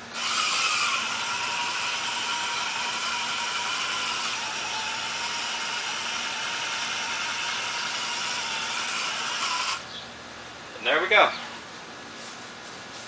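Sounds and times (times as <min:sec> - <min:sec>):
electric motor and gears whining: 0:00.0 - 0:10.0.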